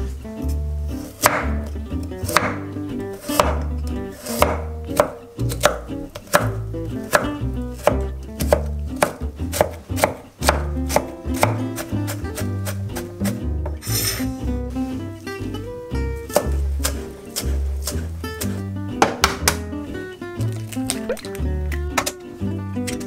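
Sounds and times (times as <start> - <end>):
knife chopping carrot on wooden board: 1.1 - 13.8, 16.3 - 19.7.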